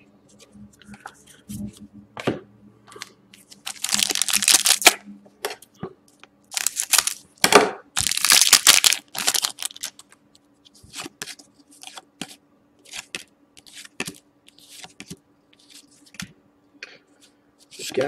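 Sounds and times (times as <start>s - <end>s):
cards rustling: 3.0s - 4.9s, 6.5s - 7.2s, 8.0s - 10.1s
foil wrapper crinkling: 3.5s - 5.0s, 6.5s - 7.2s, 8.0s - 10.1s
scissors cutting foil wrapper: 3.7s - 5.0s, 6.5s - 7.2s, 8.0s - 10.0s.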